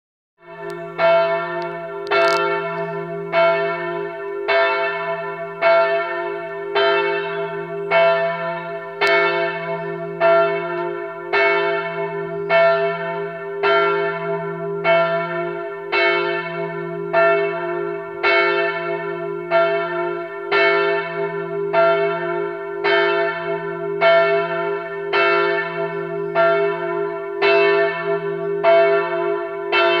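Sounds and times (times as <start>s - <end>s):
church bells ringing: 0.4s - 30.0s.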